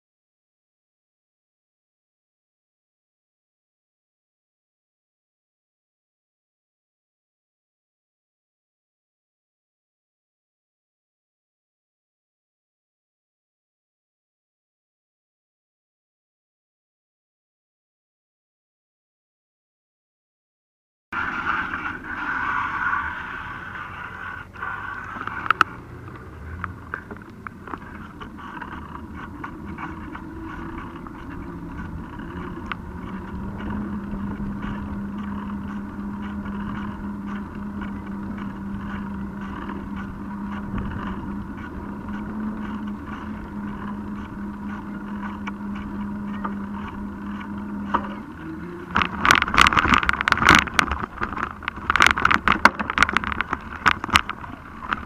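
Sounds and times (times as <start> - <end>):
bike tyre hum on pavement: 21.2 - 55.0.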